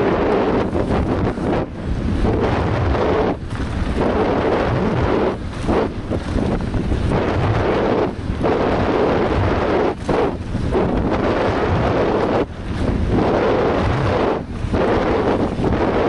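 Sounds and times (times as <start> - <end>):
wind buffeting microphone: 0.0 - 16.0
bike rattling over rocky trail: 3.5 - 4.0.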